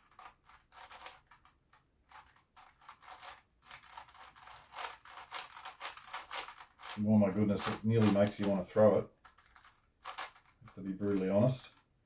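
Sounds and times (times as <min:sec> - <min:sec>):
puzzle cube plastic clicks: 0:00.0 - 0:12.0.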